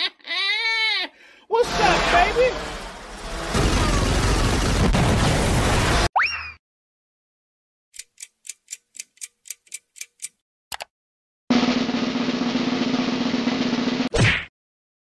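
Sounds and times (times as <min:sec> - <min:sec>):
quick ticks: 0:08.0 - 0:10.9
snare drum roll: 0:11.5 - 0:14.1.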